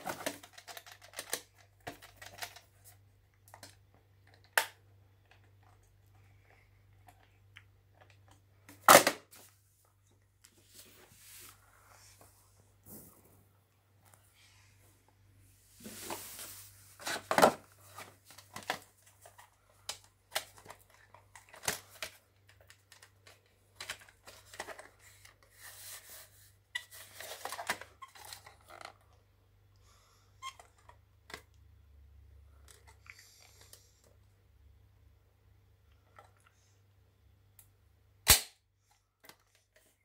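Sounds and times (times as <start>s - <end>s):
plastic cassettes clacking: 0.0s - 2.7s.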